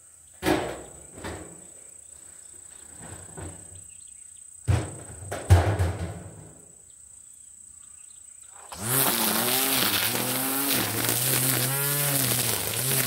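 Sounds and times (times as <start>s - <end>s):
string trimmer cutting weeds: 8.5s - 13.0s.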